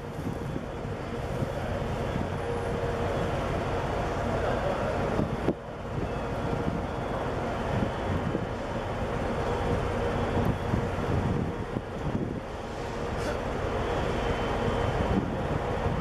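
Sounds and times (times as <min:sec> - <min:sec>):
wind on microphone: 0:00.0 - 0:02.4, 0:10.3 - 0:12.6, 0:15.0 - 0:16.0
ship engine rumble and hum: 0:00.0 - 0:16.0.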